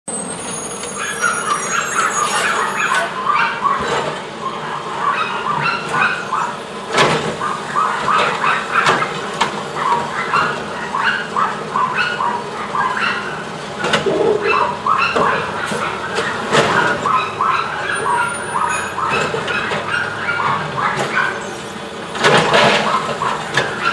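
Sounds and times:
short high squeals: 0:00.1 - 0:03.2.

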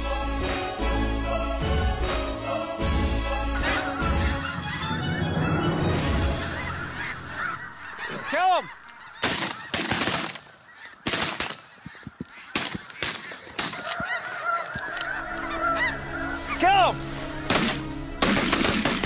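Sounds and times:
geese honking overhead: 0:00.0 - 0:19.0
shotgun shots: 0:17.5 - 0:19.0.

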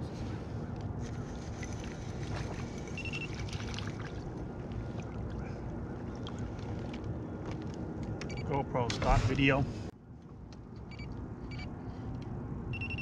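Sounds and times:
water lapping against hull: 0:00.2 - 0:07.6.

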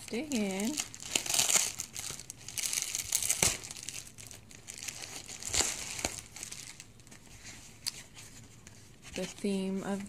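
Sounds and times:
bubble mailer crinkling: 0:00.0 - 0:07.2.

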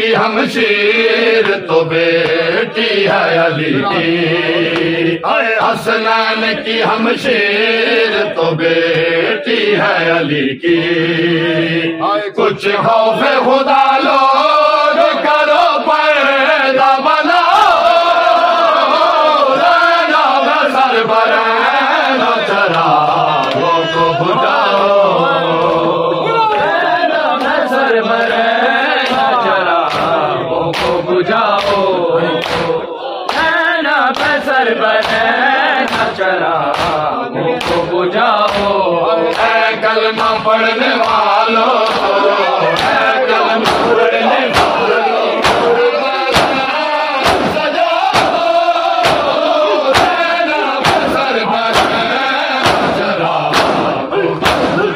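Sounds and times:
men chanting in unison: 0:00.0 - 0:54.9
hands slapping chests: 0:02.2 - 0:02.4, 0:04.7 - 0:05.0, 0:29.0 - 0:31.0, 0:31.6 - 0:31.8, 0:32.4 - 0:33.5, 0:34.1 - 0:34.4, 0:35.0 - 0:39.6, 0:40.2 - 0:54.9.

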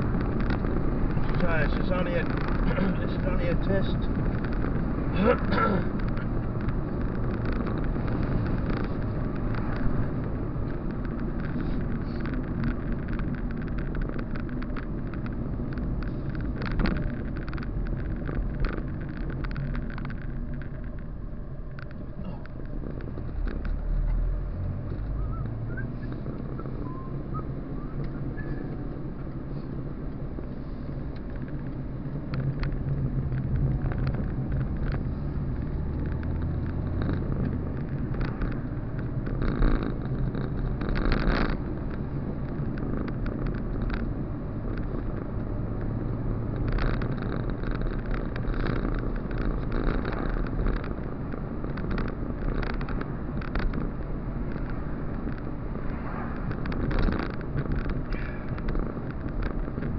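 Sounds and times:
car engine and road noise: 0:00.0 - 0:59.9
light clicks and knocks: 0:28.0 - 0:59.9.

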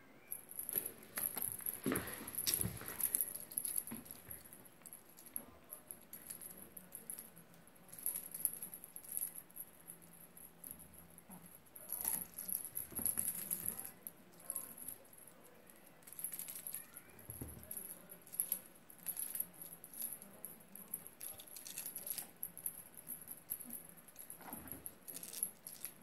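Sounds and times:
cat toy rattling: 0:00.5 - 0:04.6.

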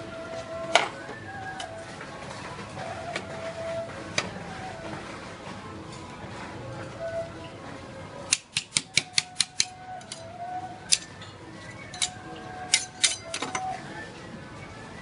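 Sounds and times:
metal spatulas clacking on steel: 0:08.3 - 0:10.3, 0:10.9 - 0:11.1, 0:12.0 - 0:13.7.

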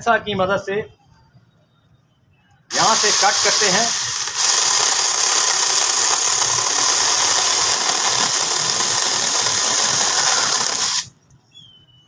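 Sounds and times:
mini chainsaw cutting branch: 0:02.7 - 0:11.1.

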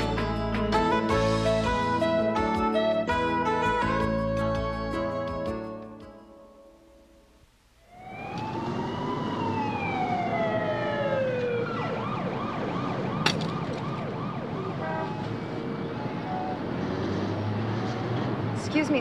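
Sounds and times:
city street traffic: 0:00.0 - 0:05.5, 0:07.9 - 0:19.0
emergency vehicle siren: 0:07.9 - 0:18.4.

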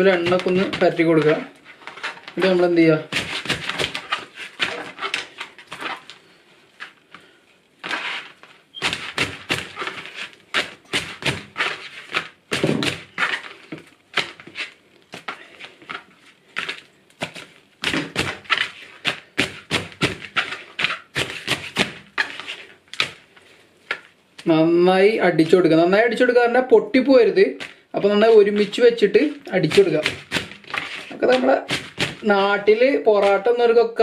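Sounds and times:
hands slapping flatbread stack: 0:03.1 - 0:06.2, 0:07.8 - 0:24.5, 0:29.4 - 0:32.2.

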